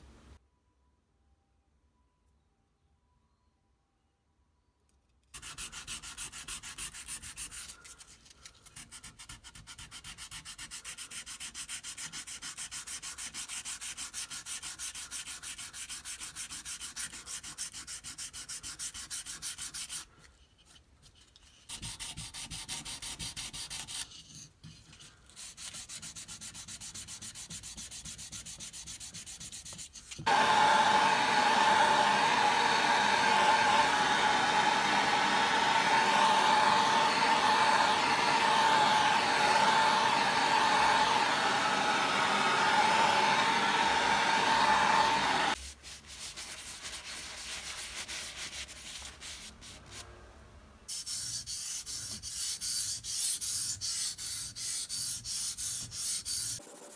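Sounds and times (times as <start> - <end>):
sandpaper rubbing: 5.4 - 20.2, 21.0 - 30.3, 45.5 - 50.0, 50.9 - 56.9
whirring humming machine: 30.3 - 45.6.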